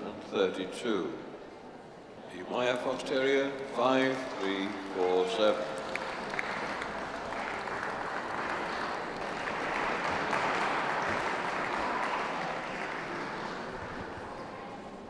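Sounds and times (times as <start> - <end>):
audience applauding: 3.8 - 14.4.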